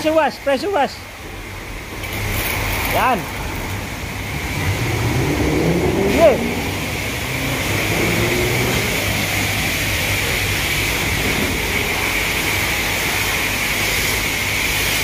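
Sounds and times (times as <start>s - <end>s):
pressure washer spraying water: 0.0s - 15.0s.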